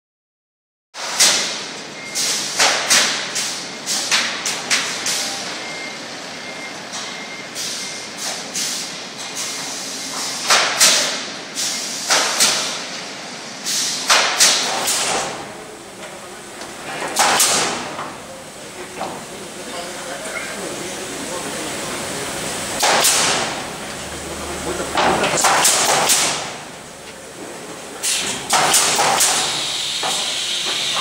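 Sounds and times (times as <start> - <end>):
air hiss bursts: 7.6 - 12.8, 13.6 - 15.4, 28.0 - 31.0
nailing machine bangs: 14.0 - 15.5, 17.0 - 18.0, 22.8 - 23.6, 25.0 - 26.7, 28.0 - 30.8.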